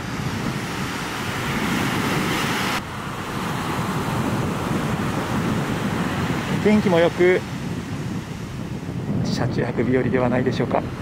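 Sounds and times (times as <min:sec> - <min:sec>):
ocean surf washing ashore: 0:00.0 - 0:11.0
wind buffeting microphone: 0:00.0 - 0:11.0.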